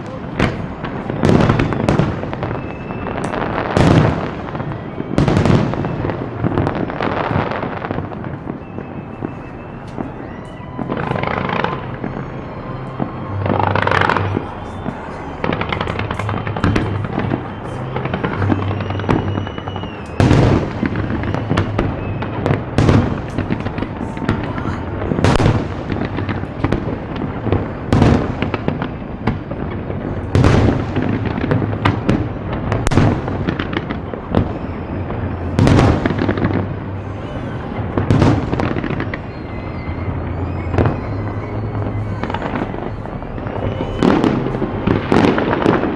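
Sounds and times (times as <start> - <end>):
fireworks bangs: 0.0 - 45.9
fireworks crackling: 0.0 - 45.9.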